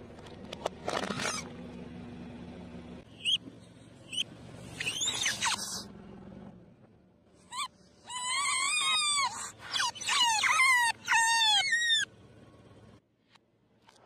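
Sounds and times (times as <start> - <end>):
rubber squeeze toys squeaking: 0.9 - 1.5, 3.2 - 3.4, 4.8 - 5.9, 7.4 - 12.1.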